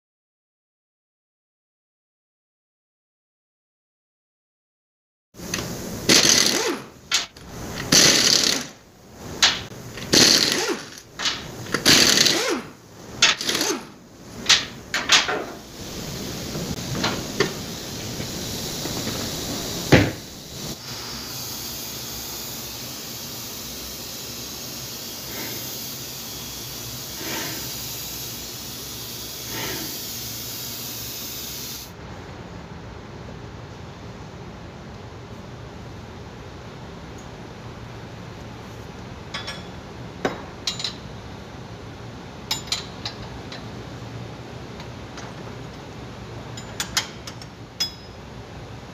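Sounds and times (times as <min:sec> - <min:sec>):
impact wrench rattling: 0:05.6 - 0:08.8, 0:09.4 - 0:15.5.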